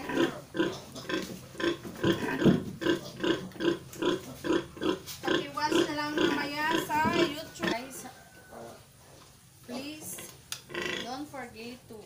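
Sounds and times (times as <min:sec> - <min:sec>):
sow grunting: 0:00.0 - 0:08.0, 0:09.7 - 0:11.2.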